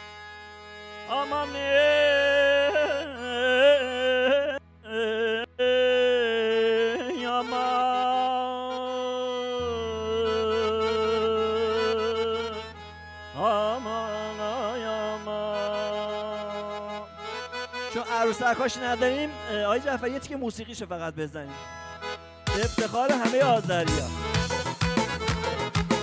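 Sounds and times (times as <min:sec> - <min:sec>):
man singing through microphone: 0:01.1 - 0:12.6, 0:13.3 - 0:17.1, 0:17.9 - 0:20.8, 0:22.6 - 0:24.2.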